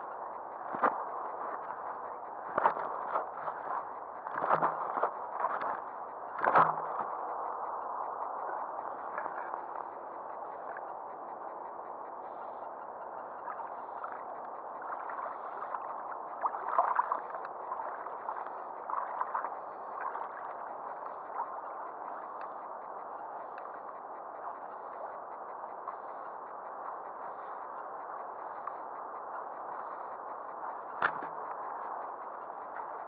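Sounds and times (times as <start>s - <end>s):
small waves lapping against boat: 0.6s - 7.2s, 12.2s - 27.7s.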